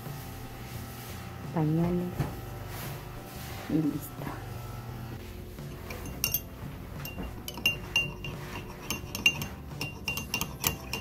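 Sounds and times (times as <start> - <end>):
teaspoon clinking in a glass: 5.8 - 11.0.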